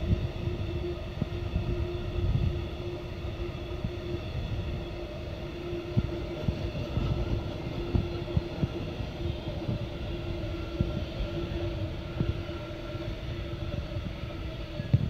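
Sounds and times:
steady humming tone: 0.0s - 15.0s
wheel-and-rail rumble: 0.0s - 15.0s.

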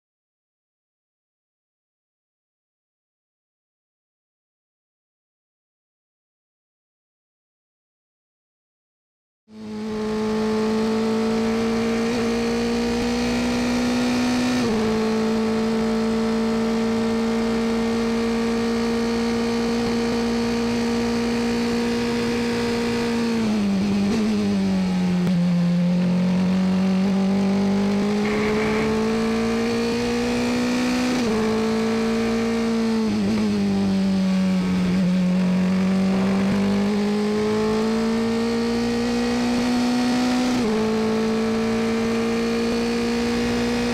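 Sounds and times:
race car engine at high revs: 9.5s - 43.9s.

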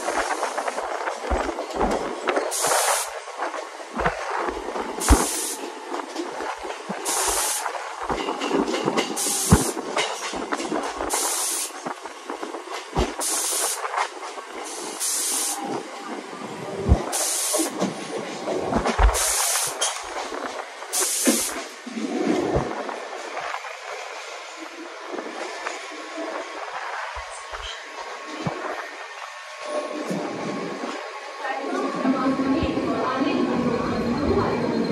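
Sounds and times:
train running noise and wind: 0.0s - 34.9s
short hissing bursts: 19.1s - 19.8s, 20.9s - 21.6s.

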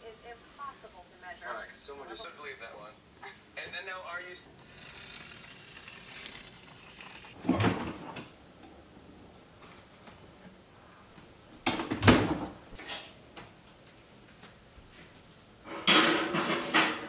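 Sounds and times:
kitchen doors bumping shut with rattle: 7.4s - 8.3s, 11.6s - 13.0s, 15.8s - 17.0s.

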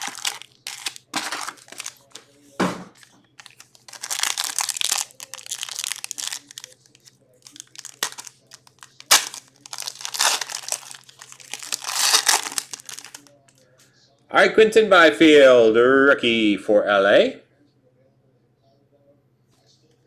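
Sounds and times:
wrappers crinkling and tearing: 0.0s - 2.3s, 2.9s - 13.4s.

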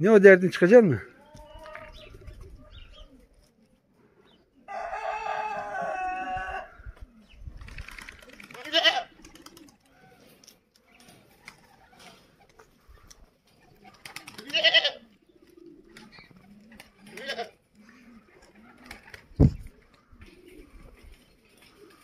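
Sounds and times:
rooster crowing: 4.7s - 6.8s.

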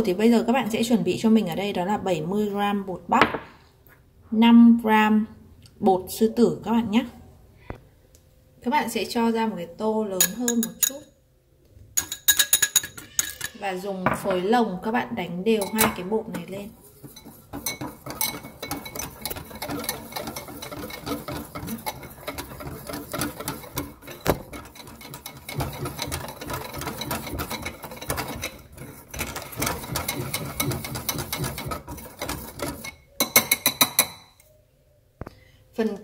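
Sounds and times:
whisk scratching against bowl: 15.7s - 33.1s.

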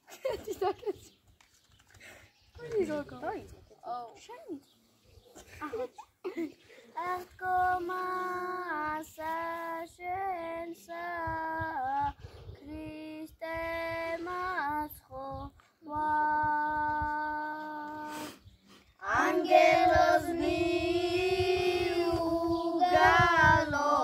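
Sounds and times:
children singing a chant: 19.0s - 24.0s.

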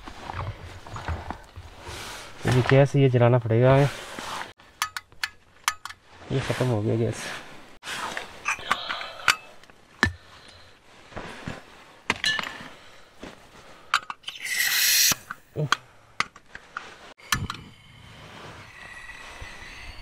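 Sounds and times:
metal clicks and clinks of stove: 4.8s - 6.0s
gas hiss: 14.3s - 15.4s.

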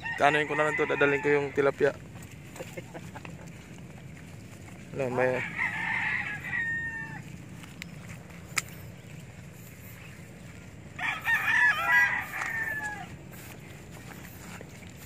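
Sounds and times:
rooster crowing: 0.0s - 1.8s, 5.1s - 7.5s, 10.9s - 13.4s.

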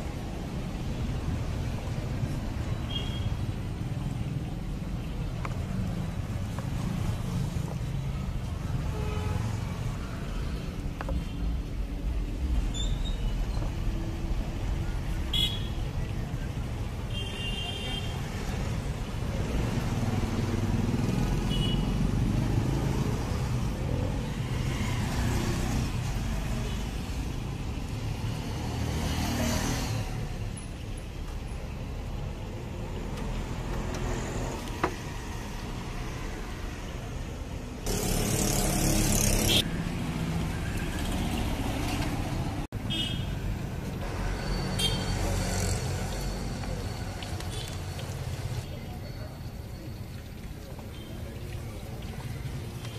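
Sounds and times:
traffic rumble: 0.0s - 52.9s.

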